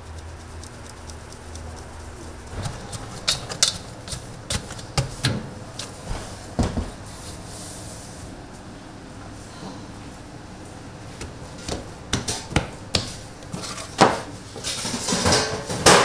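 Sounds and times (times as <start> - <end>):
objects clacking and knocking: 2.5 - 5.5, 11.6 - 16.0.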